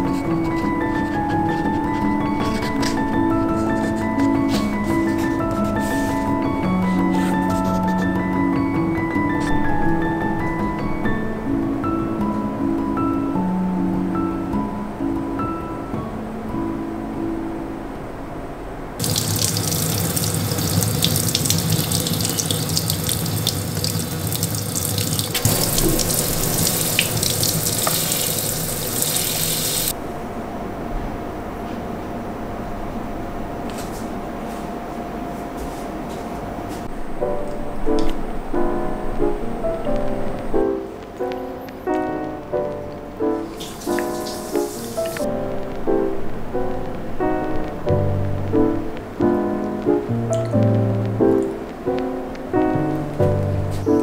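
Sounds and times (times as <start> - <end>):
gentle instrumental music: 0.0 - 19.1, 36.2 - 54.0
tap water splashing into sink: 19.0 - 29.9
soft hiss: 43.2 - 54.0.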